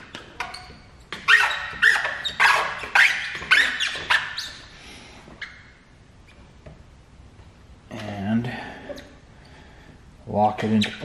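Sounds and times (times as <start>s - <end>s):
squeegee squeaking on wet film: 0.2s - 4.7s.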